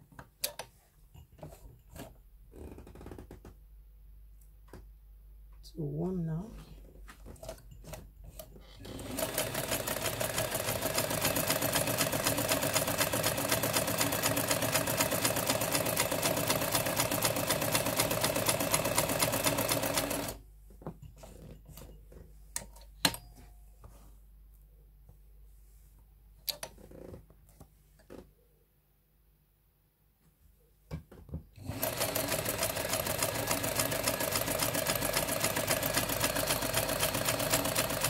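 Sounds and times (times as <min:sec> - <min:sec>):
sewing machine clattering: 0:07.4 - 0:20.4, 0:31.6 - 0:38.0.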